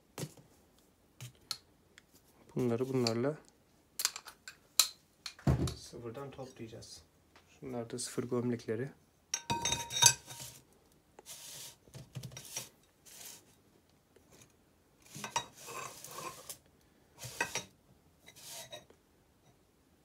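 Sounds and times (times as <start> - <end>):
metal parts scraping and sliding: 9.8 - 10.6, 14.3 - 16.6, 17.2 - 17.7, 18.3 - 18.9.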